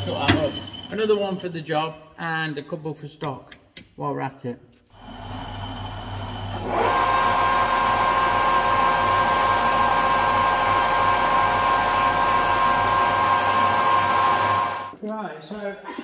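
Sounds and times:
lathe whining and humming: 5.0 - 14.9.

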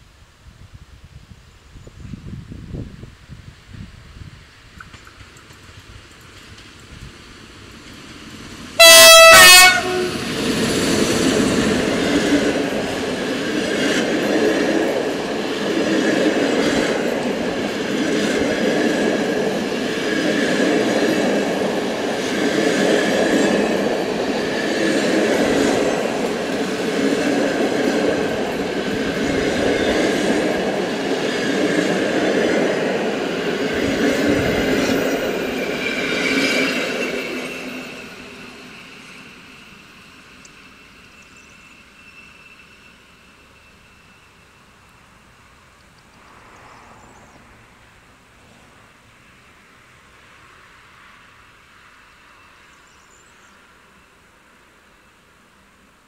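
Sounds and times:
train wheels on rails: 2.0 - 55.9
locomotive horn blast: 8.8 - 10.3.

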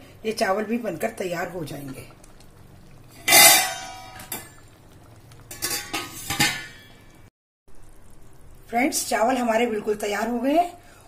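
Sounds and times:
metal pot lid clanging: 3.2 - 4.6, 5.5 - 7.2.

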